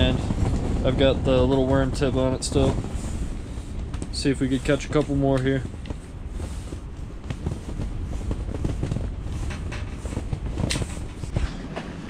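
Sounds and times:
strong wind buffeting shelter: 0.0 - 12.0
light clicks and taps: 3.9 - 6.0.

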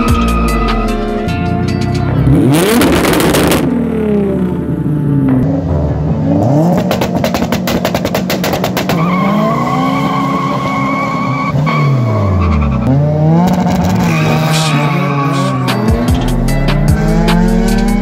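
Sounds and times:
car engines revving: 0.0 - 18.0
rapid exhaust popping: 1.6 - 4.2, 6.5 - 9.4.

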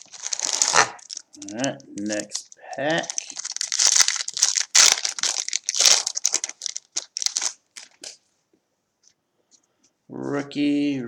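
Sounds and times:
card pack wrapper crinkling: 0.0 - 8.2.

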